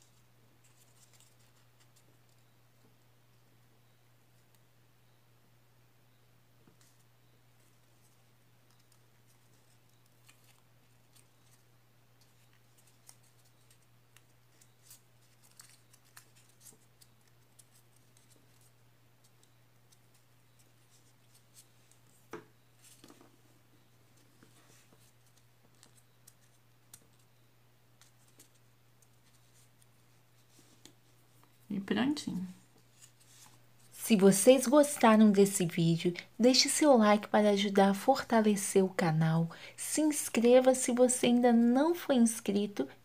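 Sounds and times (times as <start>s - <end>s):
low steady hum: 0.0s - 43.0s
paper crackling and rustling: 0.1s - 2.4s, 7.6s - 23.4s, 24.1s - 27.3s.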